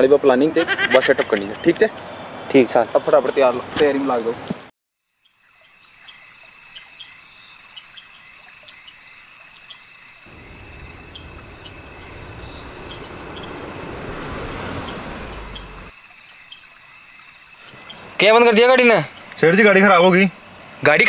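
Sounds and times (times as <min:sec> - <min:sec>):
crickets chirping: 0:05.0 - 0:21.0
approaching car engine and tyres: 0:10.2 - 0:15.9.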